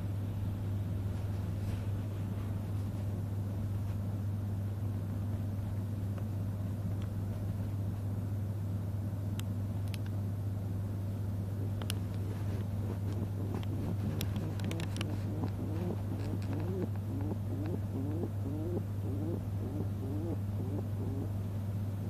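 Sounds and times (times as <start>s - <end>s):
low electrical hum: 0.0s - 22.0s
faint clicks: 13.2s - 15.6s.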